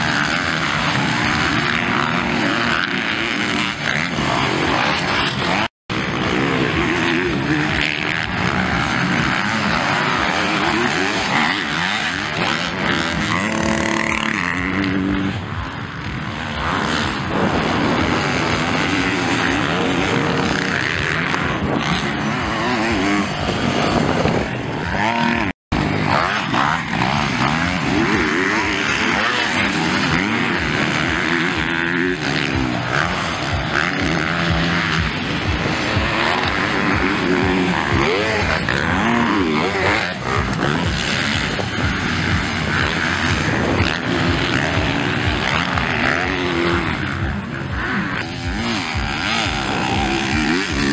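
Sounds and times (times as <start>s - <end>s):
motocross engines revving: 0.0s - 50.9s.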